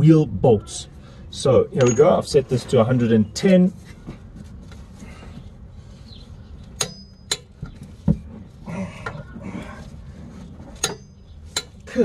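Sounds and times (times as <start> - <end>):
rough grunt-like sound: 8.6 - 10.0.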